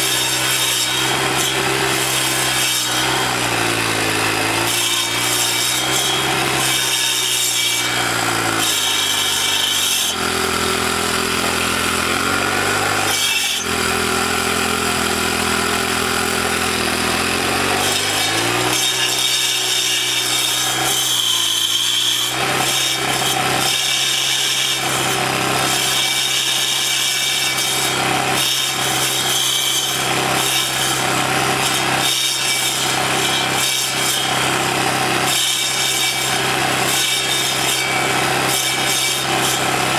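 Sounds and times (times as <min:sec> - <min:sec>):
saw blades grinding into stump: 0:00.0 - 0:39.9.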